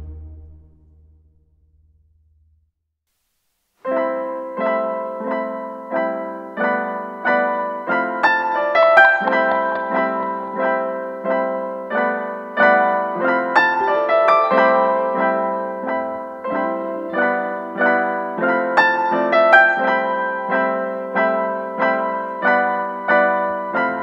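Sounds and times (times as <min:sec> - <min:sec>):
piano background music: 0:03.9 - 0:24.0.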